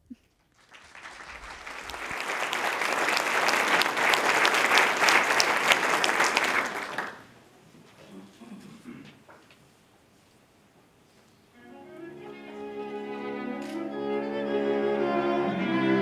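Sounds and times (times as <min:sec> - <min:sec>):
audience applauding: 0:00.5 - 0:07.3.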